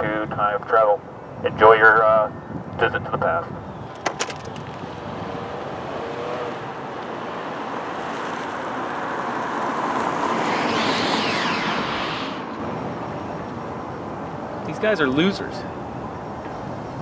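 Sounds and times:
minivan driving by: 3.7s - 14.5s.

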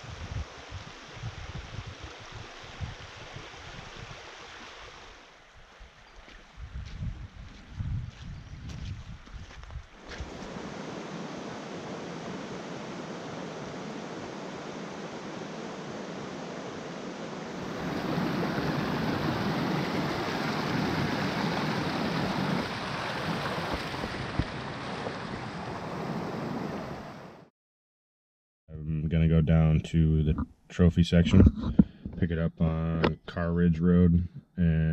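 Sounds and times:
brook rushing over stones: 9.9s - 26.2s.

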